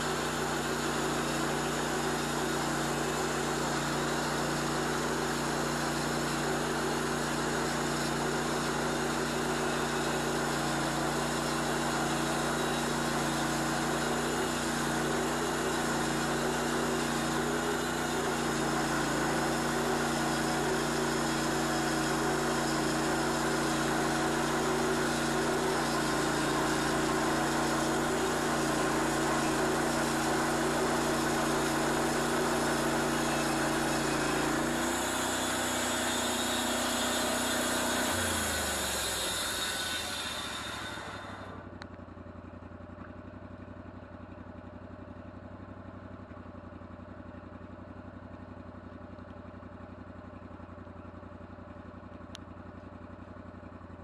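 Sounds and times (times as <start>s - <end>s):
bandsaw mill cutting log: 0.0s - 41.9s.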